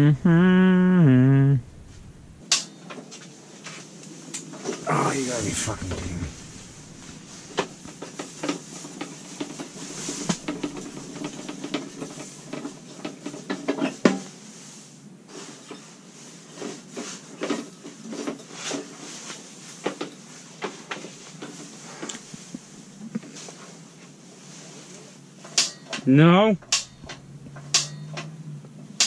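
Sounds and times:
faint gas hiss: 0:00.0 - 0:02.5, 0:04.6 - 0:11.4
heater clicks and clunks: 0:02.2 - 0:03.2, 0:05.4 - 0:14.3, 0:25.4 - 0:28.4.

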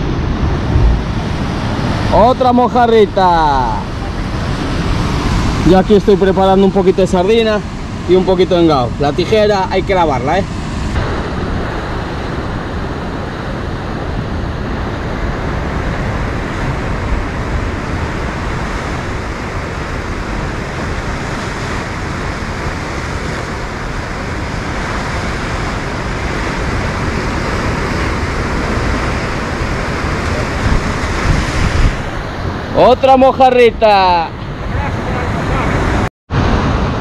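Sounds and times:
wind buffeting microphone: 0:00.0 - 0:02.6, 0:10.4 - 0:32.8
sea surf breaking: 0:00.0 - 0:37.0.

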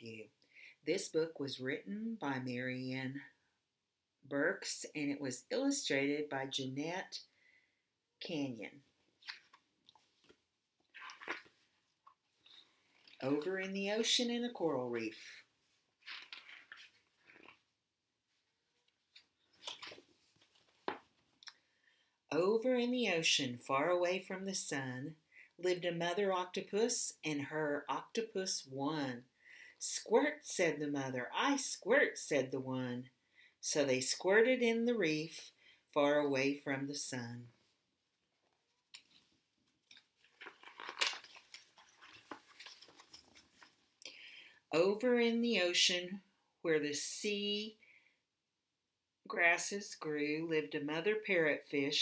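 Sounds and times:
book pages rustling: 0:09.2 - 0:13.3, 0:16.0 - 0:17.7, 0:18.7 - 0:21.3, 0:38.5 - 0:44.0.

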